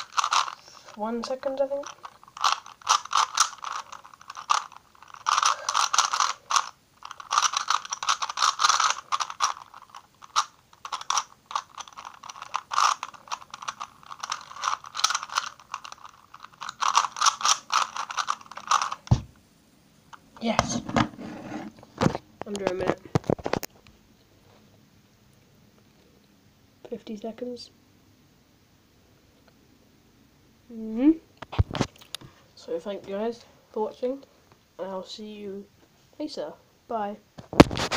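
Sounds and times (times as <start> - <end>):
puzzle cube clicking turns: 0.0 - 19.3.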